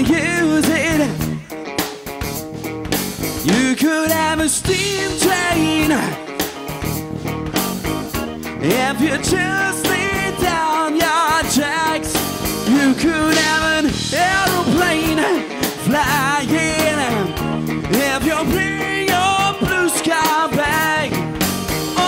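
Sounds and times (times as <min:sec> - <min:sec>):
drum kit: 0:00.0 - 0:22.0
electric bass: 0:00.0 - 0:22.0
wavering lead line: 0:04.4 - 0:22.0.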